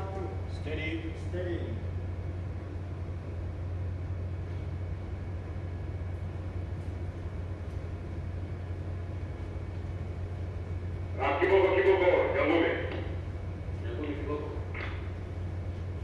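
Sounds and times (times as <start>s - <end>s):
ship engines humming: 0.0s - 16.0s.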